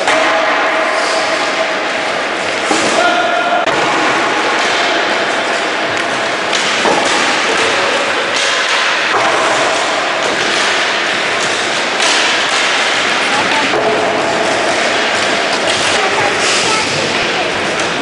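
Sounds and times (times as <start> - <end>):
sticks striking balls: 0.0 - 18.0
balls thudding against boards: 2.4 - 16.0
skate wheels rolling on hard floor: 3.7 - 18.0.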